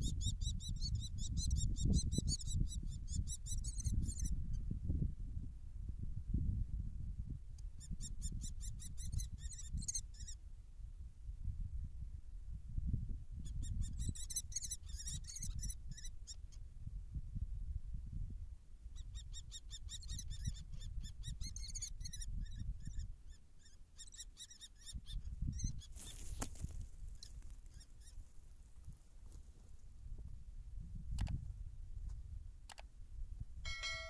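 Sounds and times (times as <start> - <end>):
wind rumble on microphone: 0.0 - 23.4, 24.9 - 34.0
high-pitched chattering bird calls: 13.6 - 16.1.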